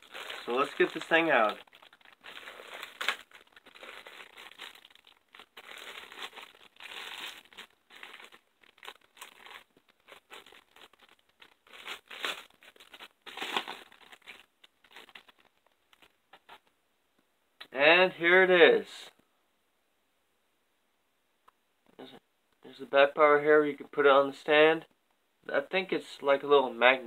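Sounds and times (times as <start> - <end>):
plastic wrapping crinkling: 0.0 - 16.7.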